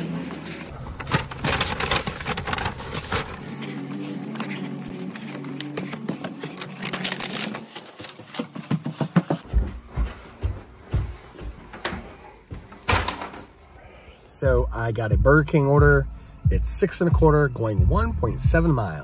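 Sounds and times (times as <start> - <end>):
paper bag rustling: 0.3 - 8.7
footsteps on carpeted stairs: 7.9 - 13.0.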